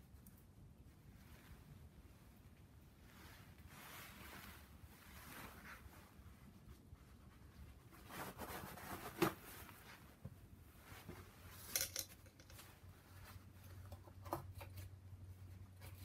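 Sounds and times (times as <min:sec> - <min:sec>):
faint low hum: 0:00.0 - 0:16.0
metal tool clicks and clinks: 0:11.7 - 0:12.6.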